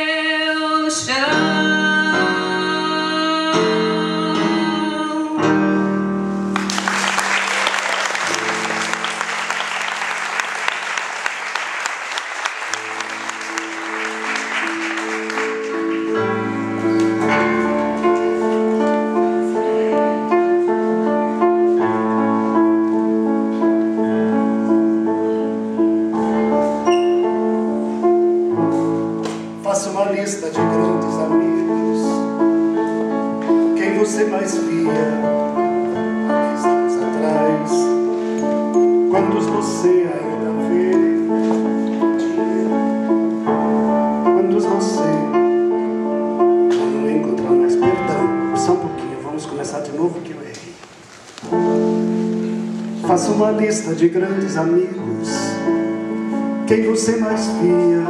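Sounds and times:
person singing: 0:00.0 - 0:05.6, 0:13.5 - 0:21.3
piano chords: 0:00.0 - 0:58.0
solo piano repeated chords: 0:01.0 - 0:58.0
audience applause: 0:06.6 - 0:17.2.

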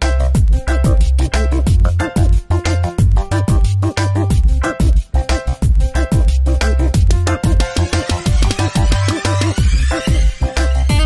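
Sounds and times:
electronic music with deep bass: 0:00.0 - 0:11.0.

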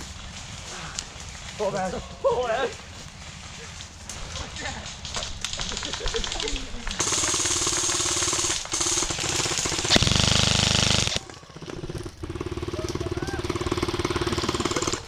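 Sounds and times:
airsoft guns firing full auto: 0:05.5 - 0:15.0.

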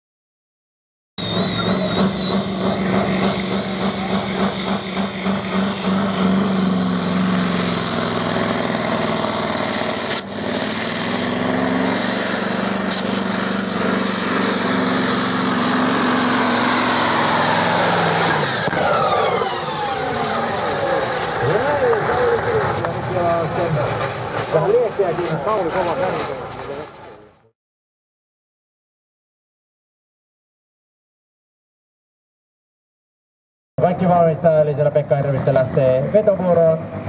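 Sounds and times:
high whistle: 0:01.2 - 0:07.8
engine at full throttle: 0:01.2 - 0:27.5, 0:33.8 - 0:37.0.

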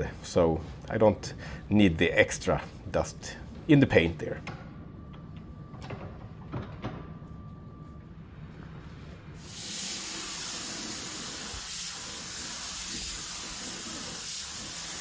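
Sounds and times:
spray gun hissing: 0:09.4 - 0:15.0.

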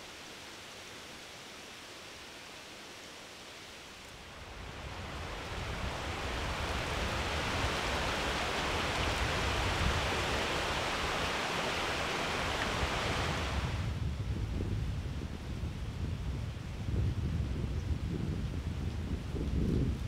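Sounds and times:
creek running over rocks: 0:00.0 - 0:13.6.

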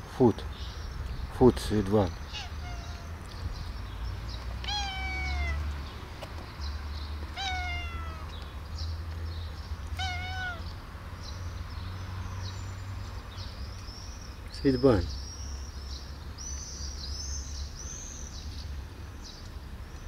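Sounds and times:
cat meowing: 0:02.3 - 0:03.3, 0:04.6 - 0:05.7, 0:07.3 - 0:08.3, 0:10.0 - 0:10.7.

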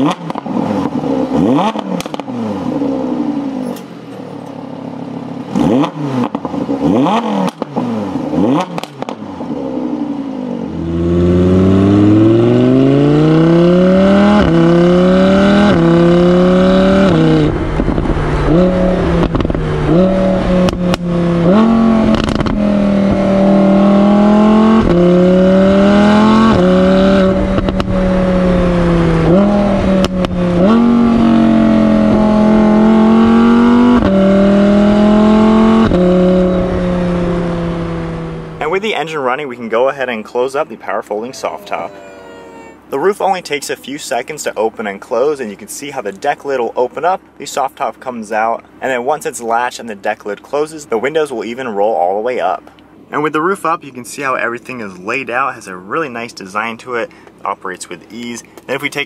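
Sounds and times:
sports car engine revving: 0:00.0 - 0:40.1.

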